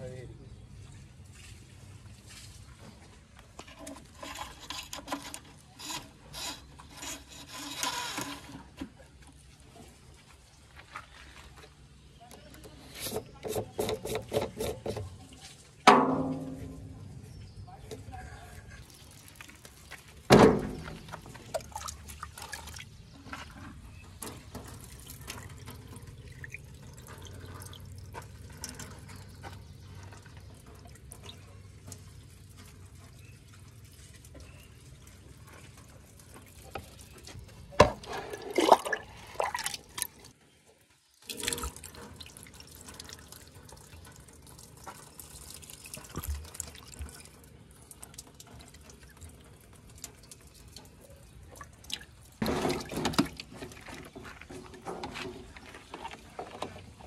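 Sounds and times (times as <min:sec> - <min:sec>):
splashing and knocks: 0:15.8 - 0:17.0, 0:18.8 - 0:34.7, 0:35.6 - 0:40.3, 0:51.5 - 0:57.0
water trickling into a tank: 0:16.6 - 0:57.0.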